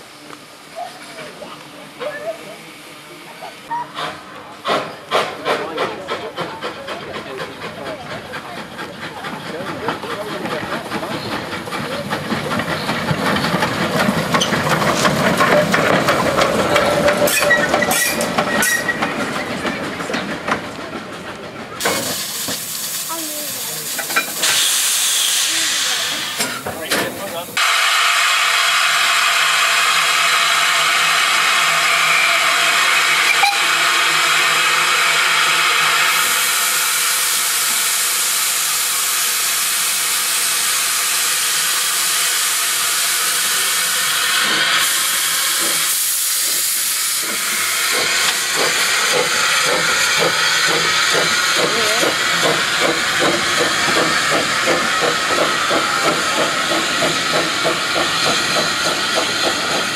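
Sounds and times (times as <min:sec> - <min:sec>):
steam venting hiss: 0:21.8 - 0:59.9
locomotive rhythmic beat: 0:47.2 - 0:59.9.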